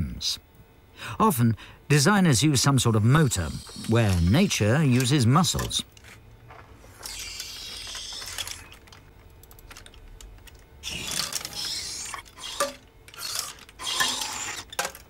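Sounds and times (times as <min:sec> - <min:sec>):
metallic clicks and clatter: 0:07.0 - 0:15.0.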